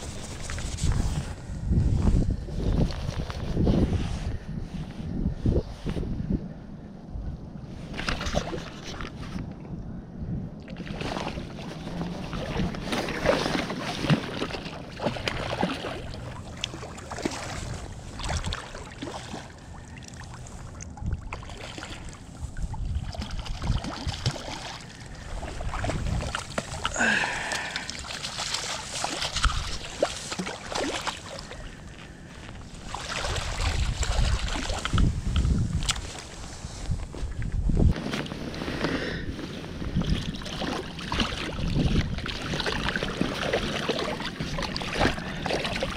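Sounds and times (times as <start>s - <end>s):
wind rumble on microphone: 0.0s - 45.9s
fish splashing and thrashing: 7.9s - 9.2s, 10.7s - 36.4s, 38.1s - 45.9s.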